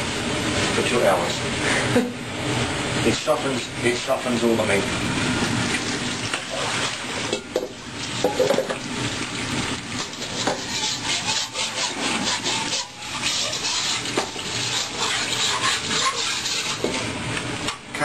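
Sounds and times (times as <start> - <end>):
pan being scrubbed: 5.4 - 17.8.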